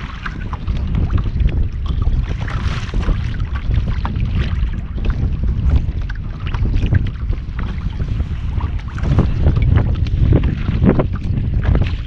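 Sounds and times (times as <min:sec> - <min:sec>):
water slapping against hull: 0:00.0 - 0:12.0
wind buffeting microphone: 0:00.0 - 0:12.0.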